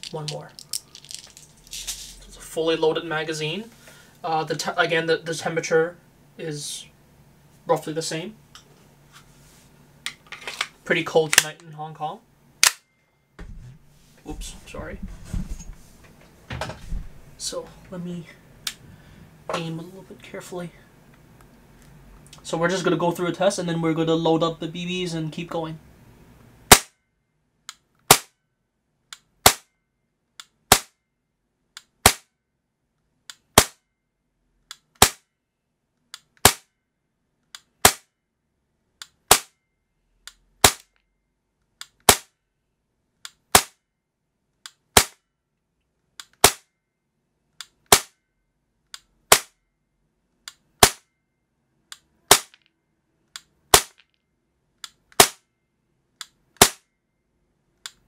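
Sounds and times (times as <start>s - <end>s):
airsoft pistol shots: 26.7s - 27.0s, 28.1s - 28.3s, 29.4s - 29.7s, 30.7s - 30.9s, 32.0s - 32.3s, 33.6s - 33.8s, 35.0s - 35.2s, 36.4s - 36.7s, 37.8s - 38.1s, 39.3s - 39.6s, 40.6s - 40.9s, 42.0s - 42.3s, 43.5s - 43.8s, 45.0s - 45.2s, 46.4s - 46.7s, 47.9s - 48.2s, 49.3s - 49.6s, 50.8s - 51.0s, 52.3s - 52.6s, 53.7s - 54.0s, 55.2s - 55.4s, 56.6s - 56.8s.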